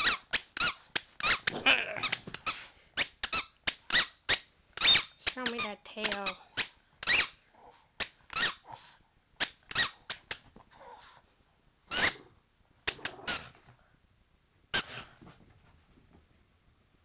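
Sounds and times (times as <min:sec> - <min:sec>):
squeaky toy ball squeaking: 0:00.0 - 0:07.4, 0:08.0 - 0:08.6, 0:09.4 - 0:10.4, 0:11.9 - 0:12.3.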